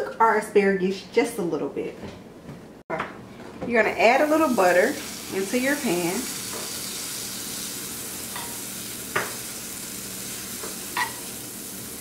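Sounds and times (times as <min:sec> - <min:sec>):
butter sizzling in a pan: 0:04.2 - 0:12.0.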